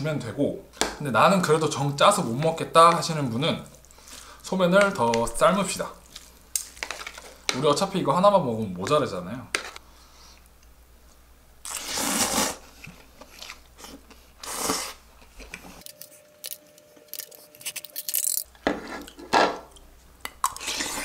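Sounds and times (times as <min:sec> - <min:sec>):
noodles being slurped: 0:11.7 - 0:15.0, 0:20.4 - 0:21.0.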